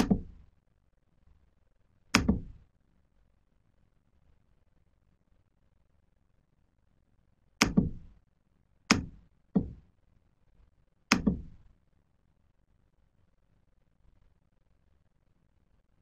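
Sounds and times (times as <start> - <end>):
sharp knocks: 0.0 - 0.4, 2.2 - 2.6, 7.6 - 8.2, 8.9 - 9.8, 11.1 - 11.6.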